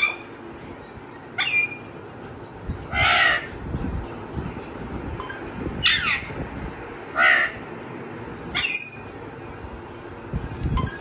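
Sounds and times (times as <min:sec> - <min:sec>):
parrot harsh calls: 0:01.4 - 0:01.9, 0:02.9 - 0:03.5, 0:05.8 - 0:06.3, 0:07.1 - 0:07.6, 0:08.5 - 0:09.1.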